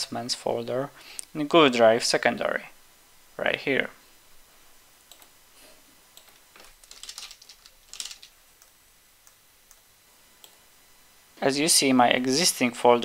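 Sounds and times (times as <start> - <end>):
computer keyboard typing: 6.2 - 9.8.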